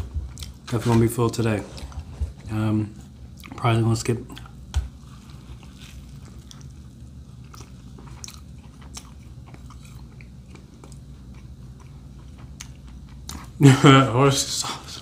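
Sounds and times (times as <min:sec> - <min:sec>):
chewing crunchy sandwich: 0:00.0 - 0:01.0, 0:04.2 - 0:13.8
low room hum: 0:00.0 - 0:15.0.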